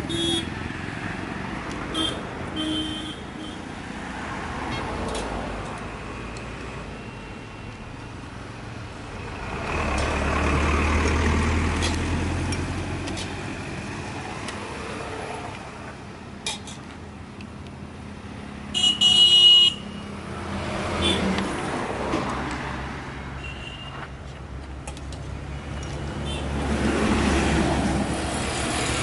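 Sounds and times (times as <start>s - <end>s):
vehicles passing: 0.0s - 29.0s
vehicle horn honking: 0.1s - 0.5s, 1.9s - 3.6s, 18.7s - 20.0s, 23.4s - 23.9s.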